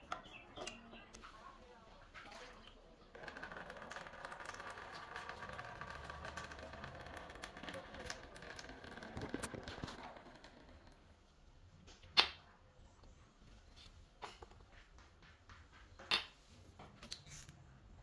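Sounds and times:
water trickling into plastic basin: 0:02.0 - 0:11.1.

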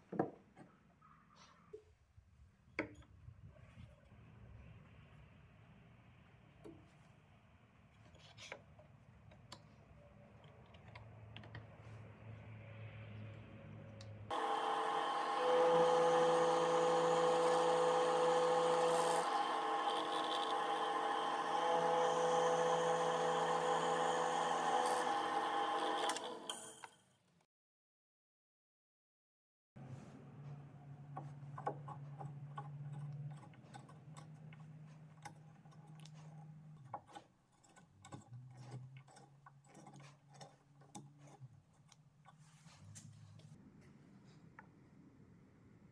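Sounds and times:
drill press boring into wood: 0:14.3 - 0:26.9.

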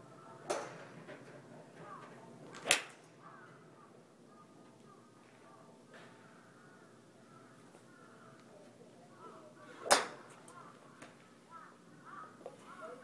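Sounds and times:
golf club striking ball: 0:02.6 - 0:03.0.

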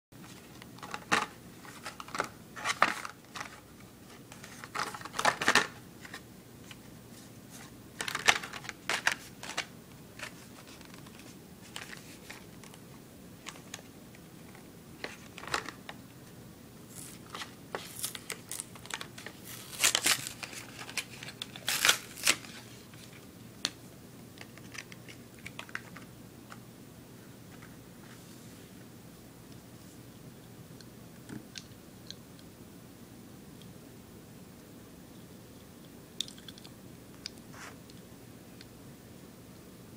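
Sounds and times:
plastic packaging crinkling: 0:00.2 - 0:06.2, 0:07.6 - 0:12.8, 0:16.9 - 0:23.2
cardboard tearing: 0:16.9 - 0:22.6.

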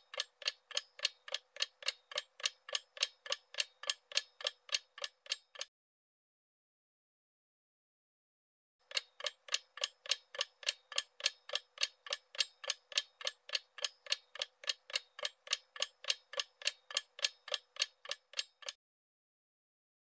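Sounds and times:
clock ticking: 0:00.0 - 0:05.7, 0:08.8 - 0:18.8.

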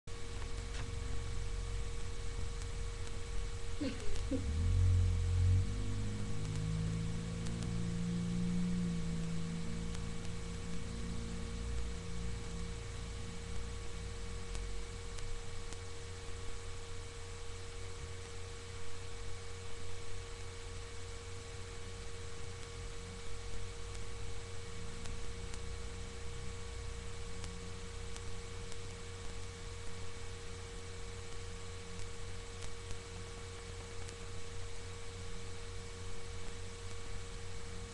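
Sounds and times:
steady electrical hum: 0:00.0 - 0:37.9
faint low pitched sound: 0:00.1 - 0:17.0.

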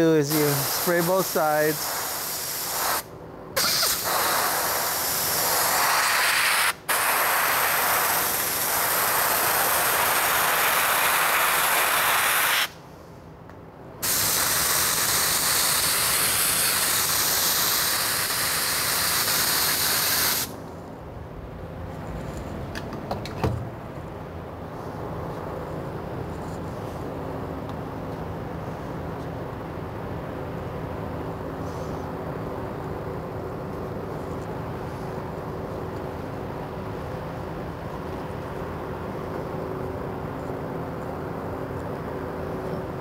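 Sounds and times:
spray gun hissing: 0:00.2 - 0:12.8, 0:14.0 - 0:20.5.

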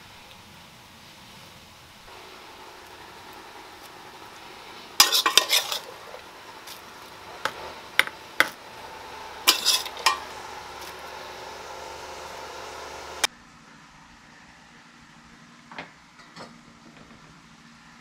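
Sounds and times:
metal spoon clinking on dishes: 0:05.0 - 0:06.0, 0:09.5 - 0:10.3
dish clatter: 0:05.0 - 0:06.2, 0:09.4 - 0:10.4.

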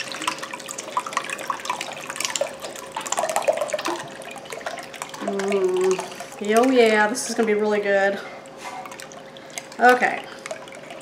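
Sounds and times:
milk pouring into a glass bowl: 0:00.0 - 0:07.0.

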